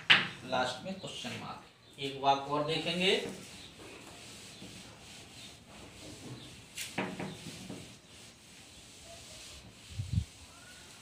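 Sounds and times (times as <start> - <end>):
duster scrubbing a chalkboard: 2.7 - 11.0.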